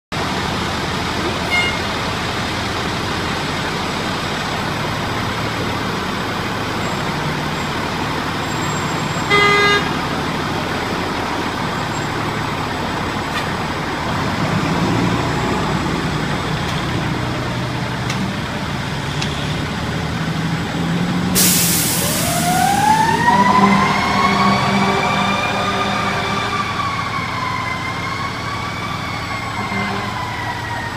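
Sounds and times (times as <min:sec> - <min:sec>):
diesel engine running: 0:00.1 - 0:30.9
horn blast: 0:09.2 - 0:10.0, 0:21.4 - 0:27.2, 0:29.6 - 0:30.2
hiss of air: 0:21.4 - 0:22.8
siren wailing: 0:21.8 - 0:30.9.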